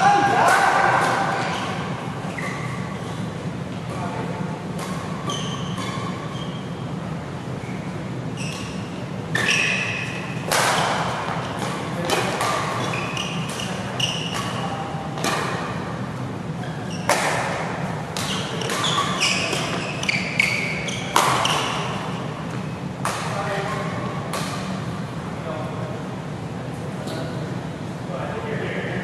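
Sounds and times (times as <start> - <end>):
shoes squeaking on court: 1.1 - 7.0, 7.6 - 15.7, 16.6 - 17.2, 18.2 - 22.8
rackets striking shuttlecock: 4.6 - 6.1, 8.7 - 15.8, 17.0 - 20.2, 21.0 - 23.4, 24.3 - 24.8.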